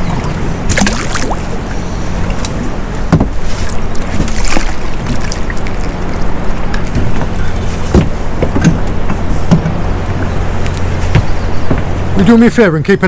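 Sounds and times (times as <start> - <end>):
wash of water noise: 0.0 - 6.9
low hum: 0.0 - 13.0.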